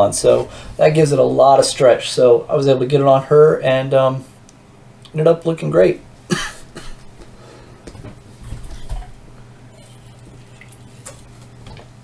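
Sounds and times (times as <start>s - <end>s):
sipping and swallowing: 8.6s - 11.9s.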